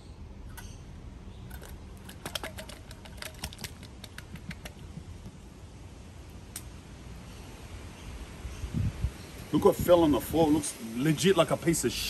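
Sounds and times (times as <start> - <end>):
light clicks and taps on a can: 1.5 - 5.0.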